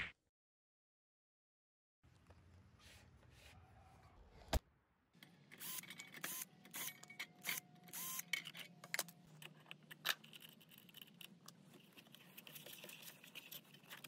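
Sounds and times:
clicks and rattles of metal parts: 5.5s - 14.0s
cordless drill whirring: 7.5s - 8.3s.

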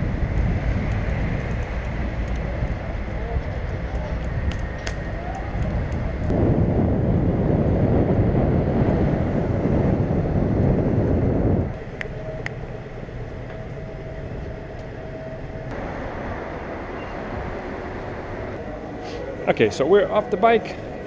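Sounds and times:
loud low rumble: 0.0s - 19.4s
traffic noise: 0.0s - 21.0s.

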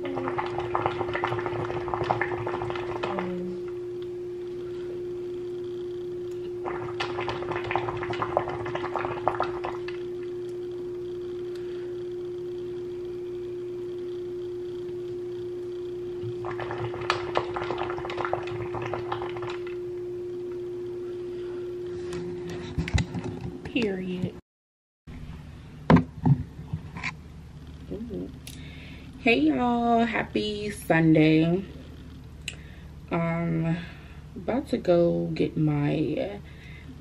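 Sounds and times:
hookah water bubbling: 0.0s - 21.3s
steady hum: 0.0s - 24.4s, 25.1s - 37.0s.

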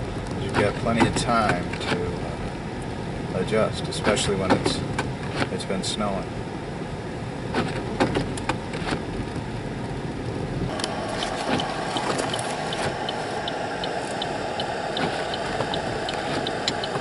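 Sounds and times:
car engine and road noise: 0.0s - 17.0s
turn signal ticking: 10.7s - 17.0s.

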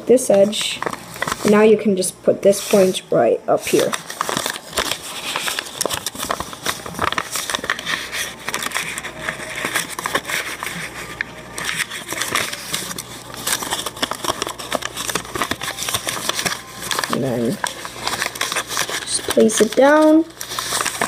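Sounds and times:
paper rustling and crinkling: 0.3s - 1.8s, 2.5s - 3.0s, 3.6s - 21.0s.

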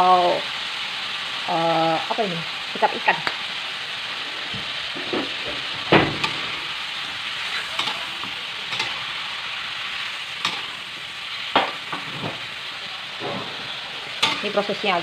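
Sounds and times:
meat sizzling in a wok: 0.0s - 15.0s
metal spatula scraping a pan: 4.9s - 9.2s, 10.3s - 12.5s, 13.1s - 14.9s.

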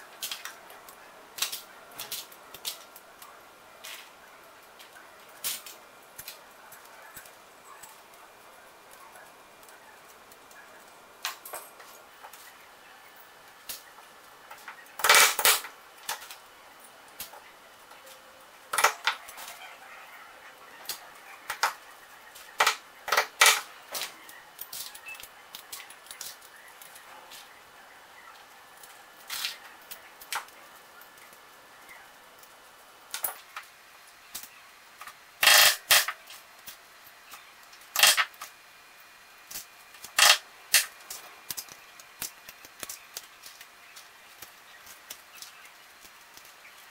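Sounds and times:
metal parts clattering on workbench: 15.0s - 15.7s, 18.8s - 19.2s, 22.6s - 24.1s, 35.4s - 36.2s, 38.0s - 38.4s, 40.2s - 40.9s.

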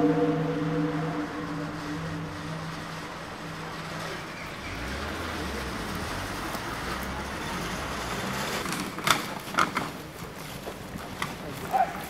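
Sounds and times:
low engine hum: 0.0s - 9.0s
street traffic rumble: 0.0s - 12.0s.

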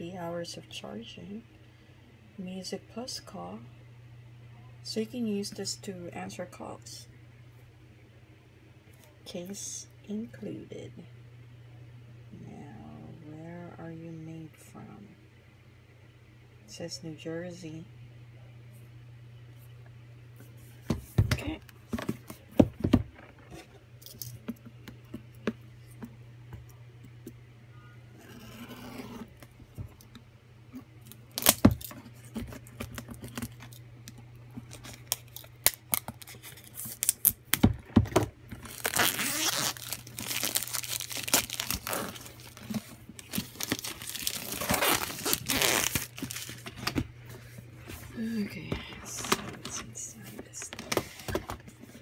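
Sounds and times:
packaging tearing and crinkling: 31.1s - 33.8s, 34.7s - 37.6s, 38.6s - 46.9s.

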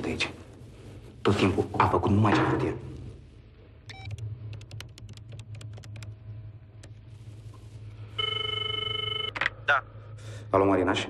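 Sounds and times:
telephone ringing tone: 8.2s - 9.5s.

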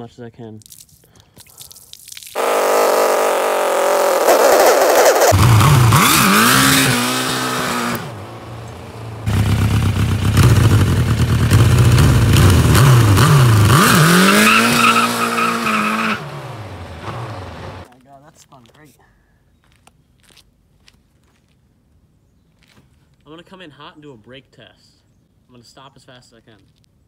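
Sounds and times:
motorcycle engine revving: 2.4s - 17.9s.

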